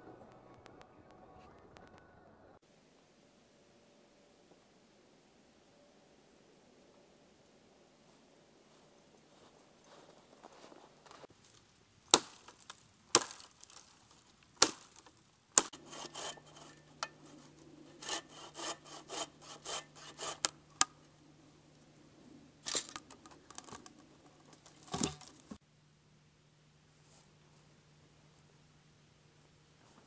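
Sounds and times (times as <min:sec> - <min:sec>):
dry wood cracking: 0:11.5 - 0:21.1, 0:22.6 - 0:25.6
bow saw cutting wood: 0:15.6 - 0:21.1.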